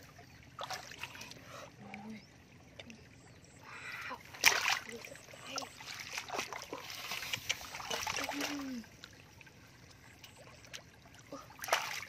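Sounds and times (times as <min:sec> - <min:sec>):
muddy water splashing in basin: 0:00.6 - 0:01.3, 0:04.2 - 0:09.1, 0:10.2 - 0:12.0.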